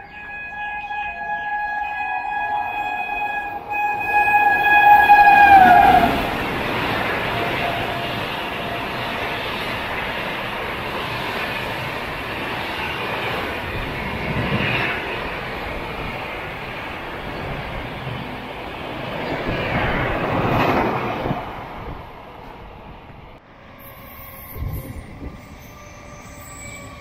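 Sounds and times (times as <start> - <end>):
train horn blast: 0.0 - 9.1
train wheels rumbling on rails: 2.2 - 27.0.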